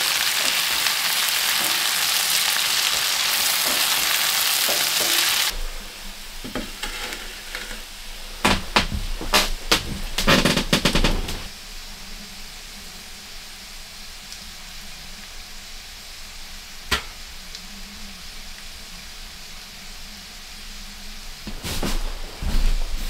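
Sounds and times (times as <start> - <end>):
fat crackling: 0.0 - 11.5
pork fat sizzling: 0.0 - 23.0.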